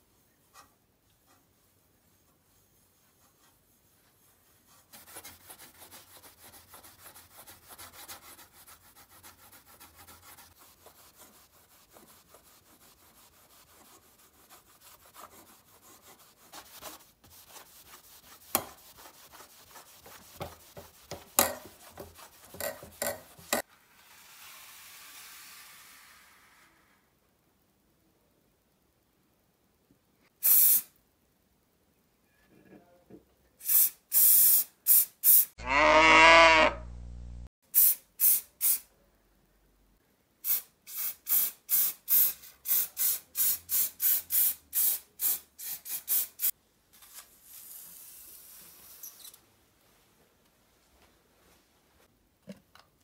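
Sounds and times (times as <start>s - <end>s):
soft hiss: 23.6s - 32.4s.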